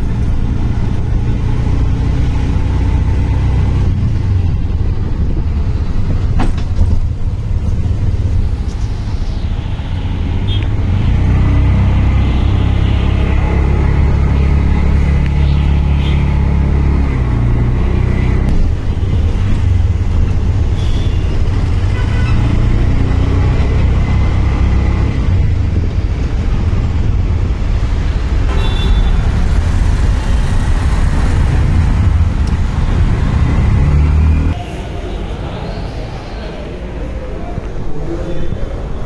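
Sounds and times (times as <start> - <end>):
road traffic engine rumble: 0.0 - 39.0.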